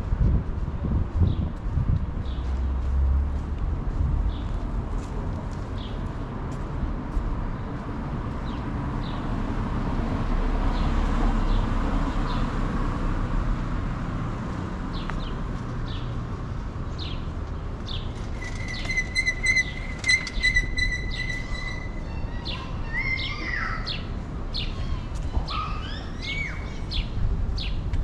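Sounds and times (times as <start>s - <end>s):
low city rumble: 0.0s - 28.0s
songbirds chirping and singing: 16.9s - 28.0s.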